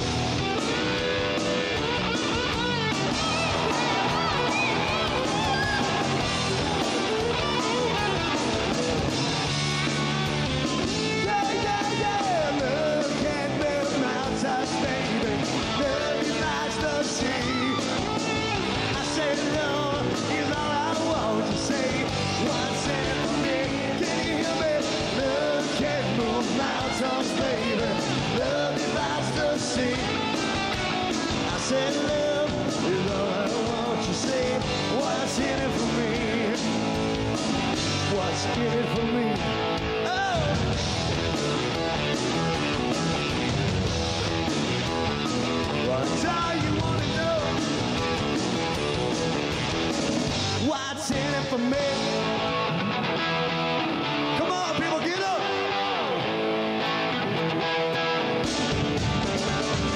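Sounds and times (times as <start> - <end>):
drums: 0.0 - 59.9
electric guitar: 0.0 - 59.9
person singing: 11.0 - 30.6, 31.3 - 36.8, 38.0 - 40.7.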